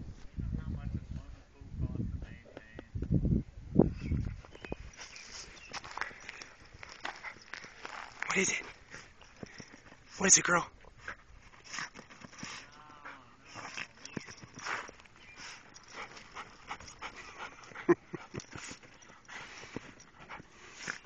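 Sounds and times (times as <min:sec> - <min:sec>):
soft rustles: 0:04.1 - 0:21.0
dog whining and snuffling: 0:10.9 - 0:21.0.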